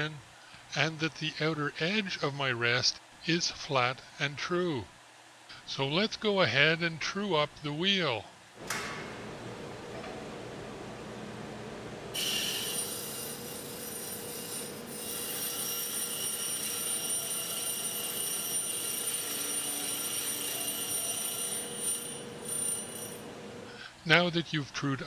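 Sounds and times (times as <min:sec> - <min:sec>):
bench grinder running: 0:12.1 - 0:23.7
high-pitched grinding squeal: 0:12.2 - 0:23.3.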